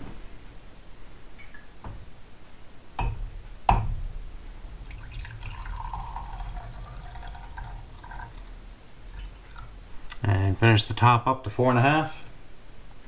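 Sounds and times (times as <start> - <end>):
sharp glass knocks: 3.0 - 4.2
liquid pouring into glass cup: 4.8 - 10.2.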